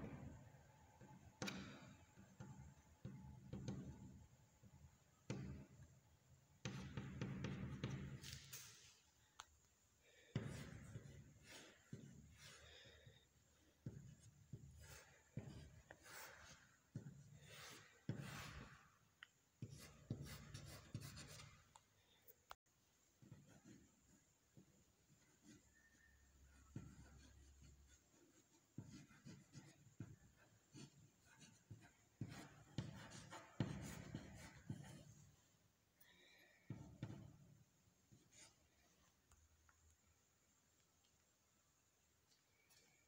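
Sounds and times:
chalk scraping on chalkboard: 0:13.8 - 0:19.0, 0:19.6 - 0:21.7, 0:25.3 - 0:35.5.

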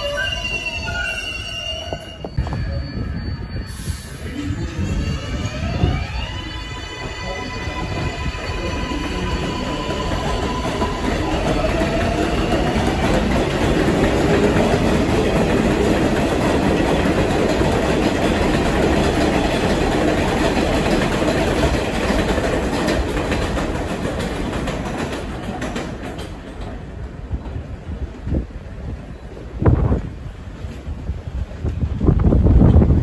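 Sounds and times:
train wheels clattering over rails: 0:08.0 - 0:28.3.

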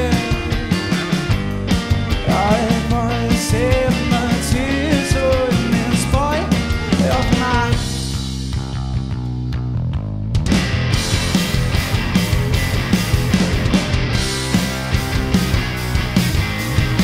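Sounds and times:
man singing: 0:00.0 - 0:00.8, 0:02.2 - 0:08.0
drums and cymbals: 0:00.0 - 0:09.1, 0:10.4 - 0:17.0
bass guitar: 0:00.0 - 0:17.0
electric guitar: 0:00.0 - 0:17.0.

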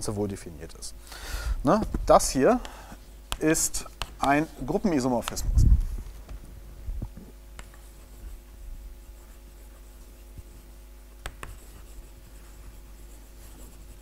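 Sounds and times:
low steady hum: 0:00.0 - 0:14.0
chalk tapping and scratching: 0:01.8 - 0:05.5, 0:07.6 - 0:14.0.

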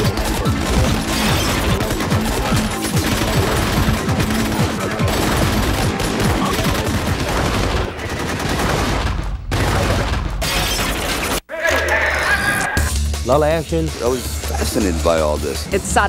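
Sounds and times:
rapid gunshots: 0:00.0 - 0:11.4.

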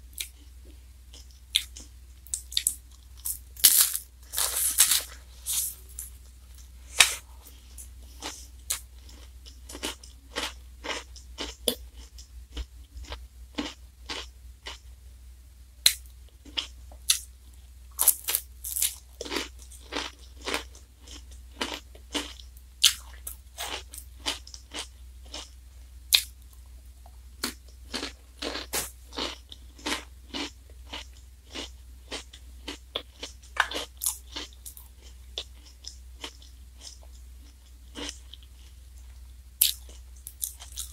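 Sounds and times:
wafer cone crunching: 0:03.7 - 0:05.7.

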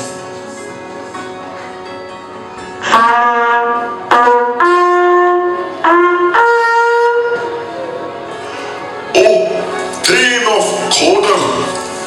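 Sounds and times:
faint background music: 0:00.0 - 0:12.0
brass fanfare: 0:02.8 - 0:07.8.

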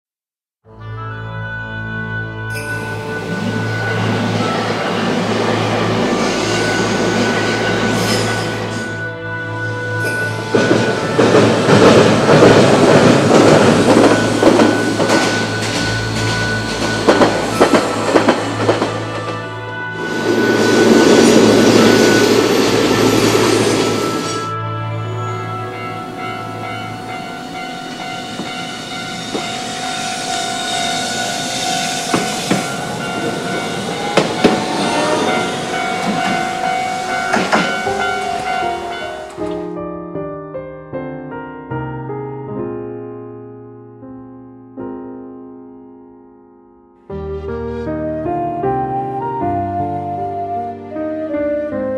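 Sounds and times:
tram wheels rumbling on track: 0:02.8 - 0:09.1, 0:09.9 - 0:39.7
rail-joint clicks: 0:10.1 - 0:19.5, 0:27.8 - 0:39.7
level crossing warning signal: 0:20.0 - 0:24.5.

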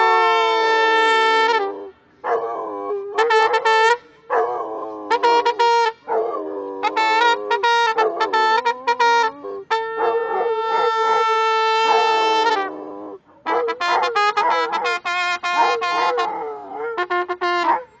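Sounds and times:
trumpet playing: 0:00.0 - 0:18.0
dog howling: 0:09.4 - 0:14.8.

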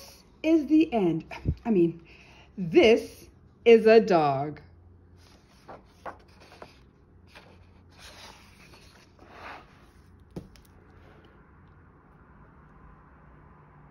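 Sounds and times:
book pages swishing: 0:05.2 - 0:11.3
book knocking on table: 0:10.3 - 0:10.7.

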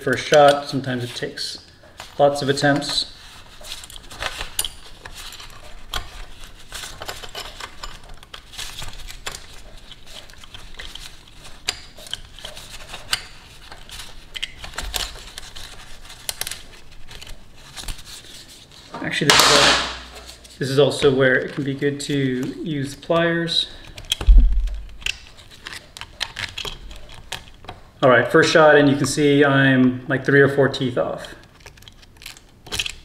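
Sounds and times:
metal chain clicking and rattling: 0:03.6 - 0:17.3.

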